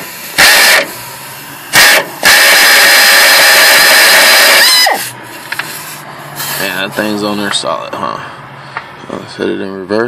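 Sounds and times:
air impact wrench hammering: 0.0 - 6.6.

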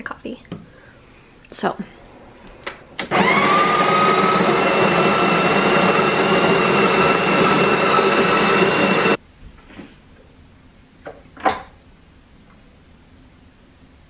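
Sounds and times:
coffee grinder motor whine: 3.1 - 9.2.

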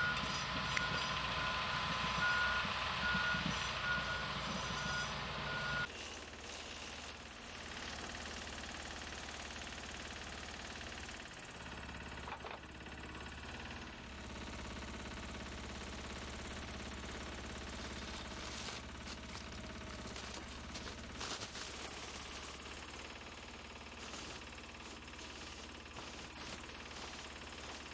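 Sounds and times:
machine engine running: 0.0 - 27.9.

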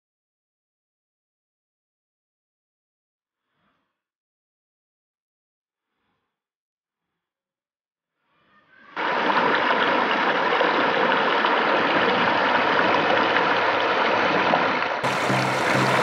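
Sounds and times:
stream rushing over weir: 9.0 - 16.0.

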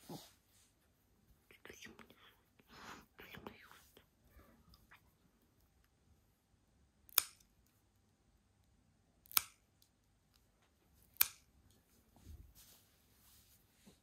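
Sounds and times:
soft rustle: 0.0 - 5.8, 11.7 - 14.0
nail clippers snipping claws: 7.1 - 7.5, 9.2 - 9.7, 11.1 - 11.5.

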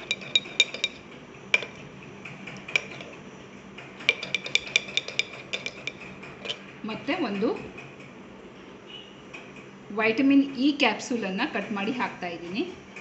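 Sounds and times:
metal spoon clinking on ceramic bowl: 0.0 - 1.0, 1.6 - 1.8, 2.7 - 3.1, 4.1 - 6.6.

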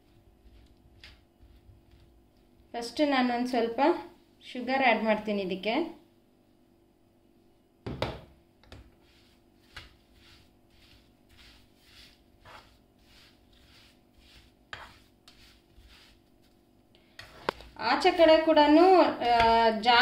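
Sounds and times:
spatula scraping a pan: 8.7 - 20.0.

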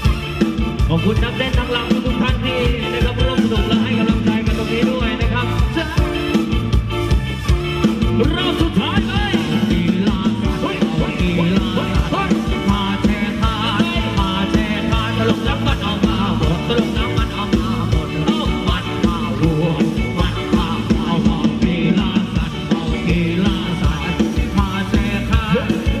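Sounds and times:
electric guitars: 0.0 - 26.0
live band playing dance music: 0.0 - 26.0
steady drum beat: 0.0 - 26.0.

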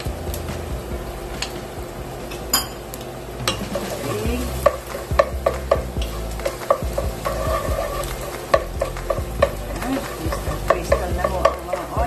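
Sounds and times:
onions frying sizzle: 0.0 - 12.0
wooden spoon scraping pot: 3.5 - 12.0
spoon knocking against pot: 4.6 - 12.0.

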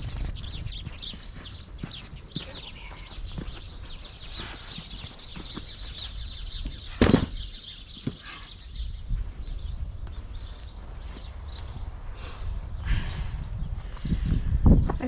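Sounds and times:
small birds chirping: 0.0 - 15.0
wooden beam thudding on dirt: 6.9 - 7.4.

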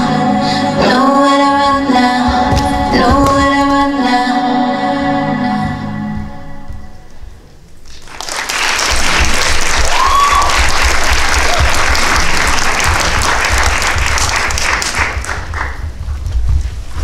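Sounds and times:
music: 0.0 - 17.0
audience applauding: 7.9 - 15.8.

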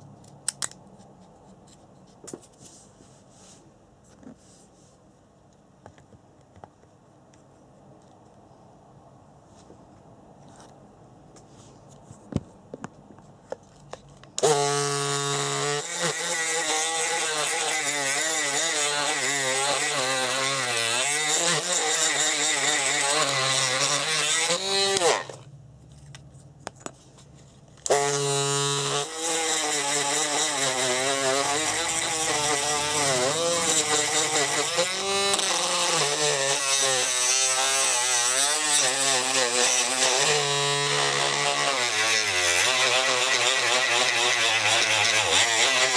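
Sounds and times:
rotary tool grinding plastic: 13.9 - 25.5, 27.8 - 45.9.

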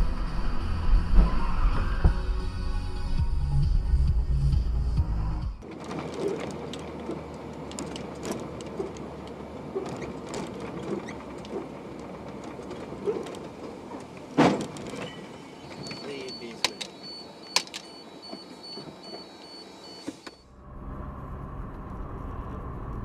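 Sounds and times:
road rumble: 0.0 - 23.0
small rattles and clicks: 5.6 - 15.1.

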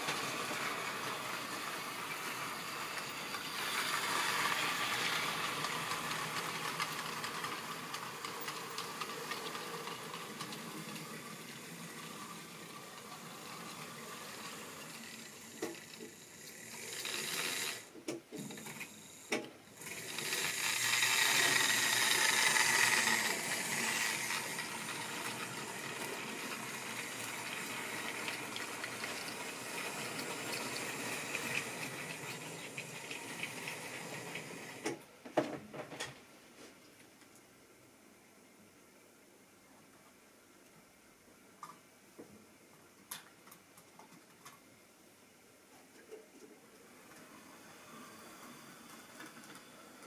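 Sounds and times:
model train whirring and rattling: 0.0 - 35.0, 46.9 - 50.0.

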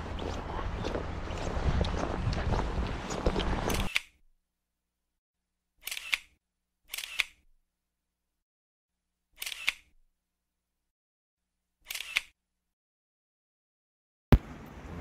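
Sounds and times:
camera shutter clicks: 5.8 - 7.4, 9.4 - 9.9, 11.9 - 12.4.

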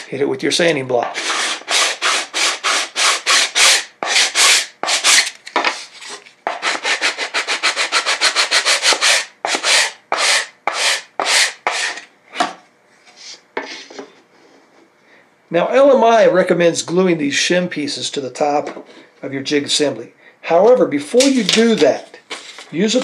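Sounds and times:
sanding block rasping on wood: 1.2 - 5.2, 6.5 - 12.0.

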